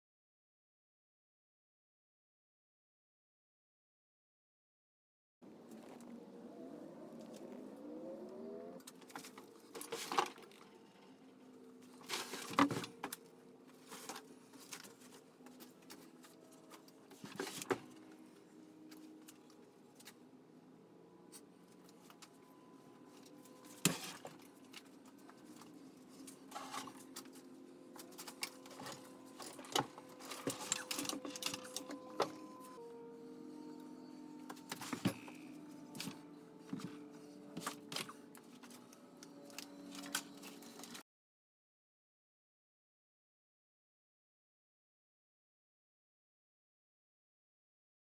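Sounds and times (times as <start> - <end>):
stepper motors whining: 5.7 - 12.0, 21.0 - 41.0.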